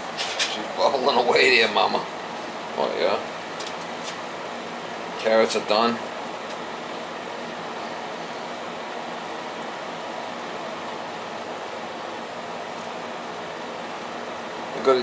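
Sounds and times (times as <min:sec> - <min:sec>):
pot bubbling at a simmer: 0:06.0 - 0:14.8.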